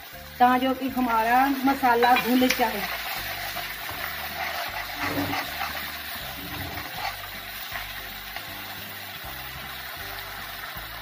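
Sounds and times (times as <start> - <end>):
masala sizzling in pan: 0.0 - 11.0
spatula stirring: 1.5 - 9.1.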